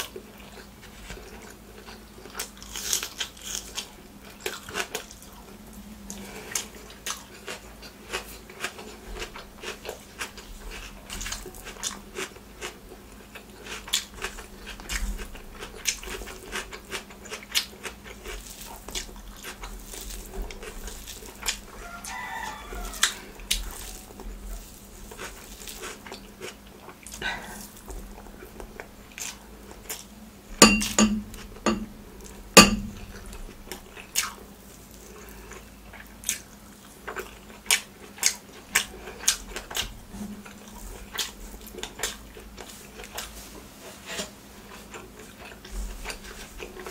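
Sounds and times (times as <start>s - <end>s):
chewing with wet mouth clicks: 6.1s - 21.7s, 35.0s - 43.2s.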